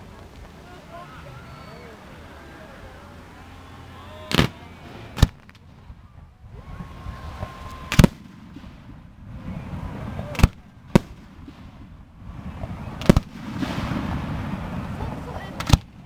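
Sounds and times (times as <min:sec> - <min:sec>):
fireworks bangs: 0:03.3 - 0:16.0.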